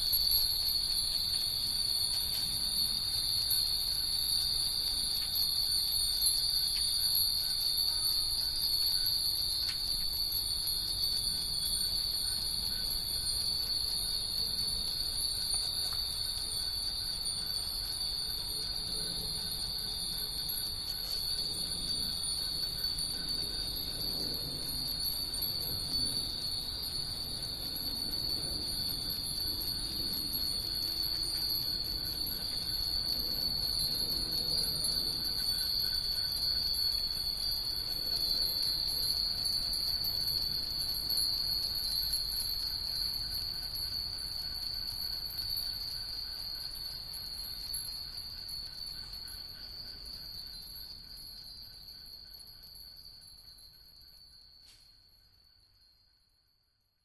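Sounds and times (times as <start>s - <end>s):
wind bells tinkling: 0.0s - 56.4s.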